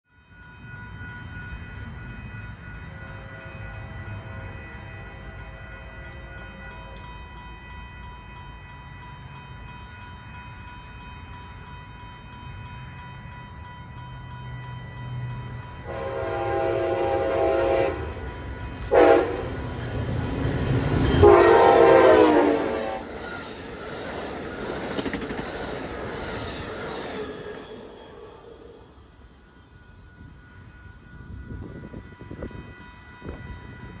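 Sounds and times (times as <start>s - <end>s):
train rumbling past: 0.2s - 34.0s
train wheels on rails: 0.6s - 34.0s
train horn blasts: 15.8s - 19.8s, 20.9s - 23.2s.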